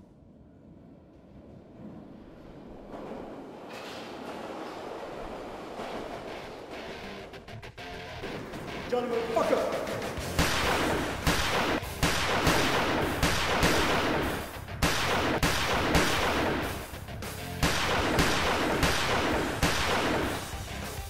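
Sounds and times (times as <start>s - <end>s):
pistol gunshots: 10.2s - 16.8s, 17.6s - 20.6s.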